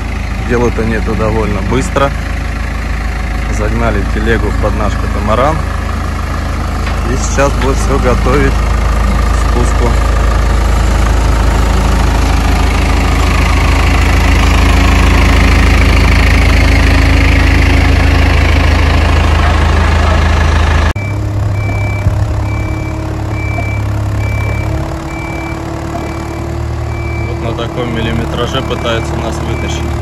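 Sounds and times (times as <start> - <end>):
heavy engine running: 0.0 - 30.0
short high beeps: 21.0 - 26.4.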